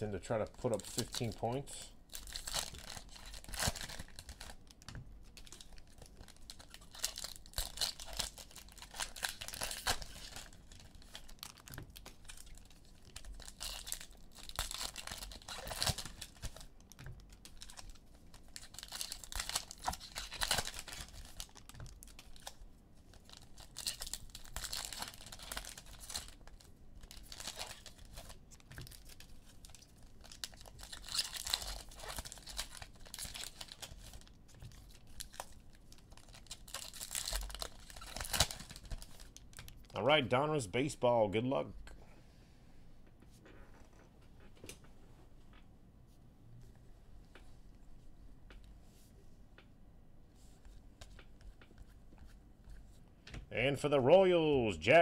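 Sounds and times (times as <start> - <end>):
foil wrappers tearing and crinkling: 0.7 - 1.4, 2.1 - 22.6, 23.2 - 39.9.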